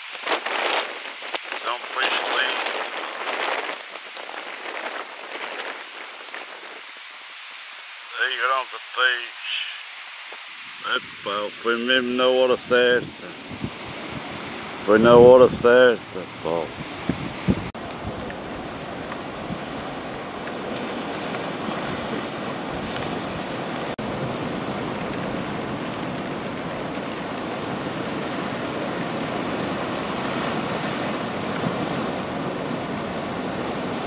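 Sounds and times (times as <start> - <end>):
waves washing against rocky shore: 0.0 - 34.0
wind: 0.0 - 34.0.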